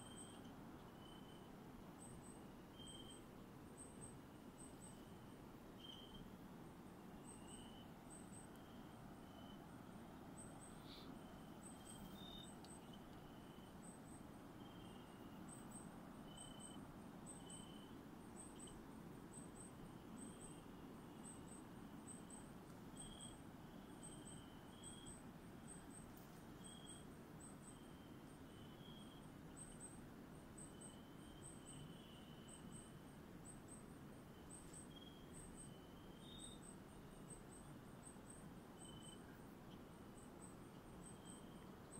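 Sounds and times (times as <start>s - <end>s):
insects chirping: 0.0s - 41.9s
low steady hiss: 0.0s - 41.9s.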